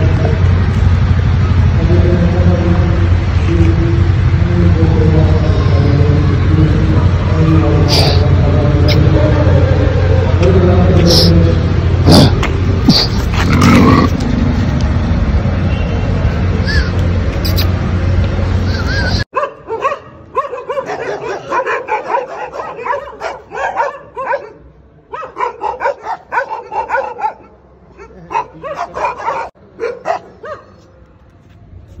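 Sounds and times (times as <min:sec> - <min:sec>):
loud steady noise: 0:00.0 - 0:19.2
dogs barking and yipping: 0:18.7 - 0:31.0.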